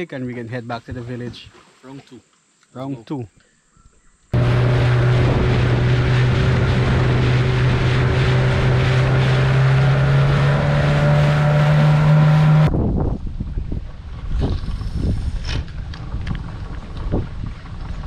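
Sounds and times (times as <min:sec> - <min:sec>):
outboard engine drone: 0:04.3 - 0:12.7, 0:13.4 - 0:18.0
wind on microphone: 0:04.4 - 0:11.1, 0:11.8 - 0:18.0
boat wake rushing: 0:04.4 - 0:12.7.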